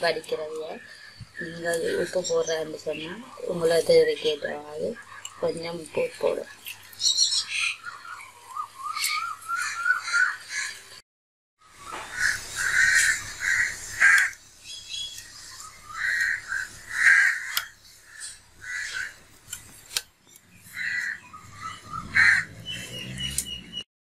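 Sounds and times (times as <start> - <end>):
crows cawing: 7.5 - 10.9, 11.8 - 14.4, 15.3 - 19.2, 20.7 - 22.7.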